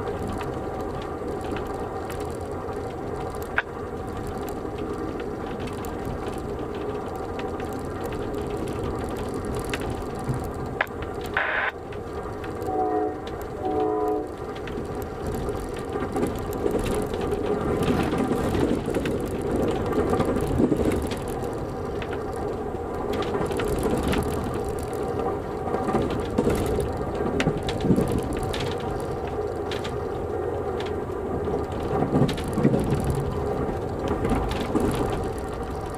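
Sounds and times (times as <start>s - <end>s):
train wheels rumbling on rails: 0.0s - 35.9s
train horn blasts: 12.6s - 14.4s.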